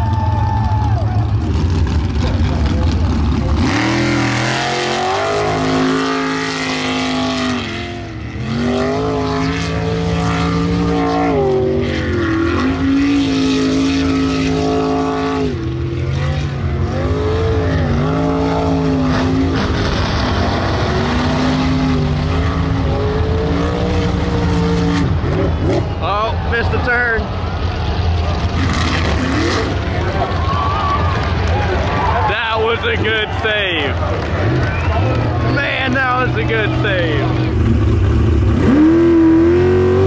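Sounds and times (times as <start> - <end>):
boat engine at high revs: 2.0 - 27.1, 34.4 - 40.0.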